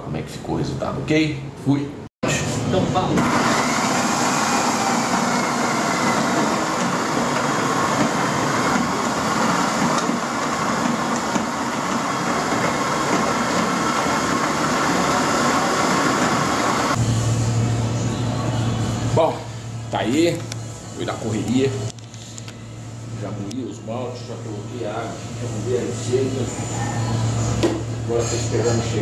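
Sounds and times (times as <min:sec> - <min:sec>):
electric drill crushing malt: 0:03.2 - 0:17.0.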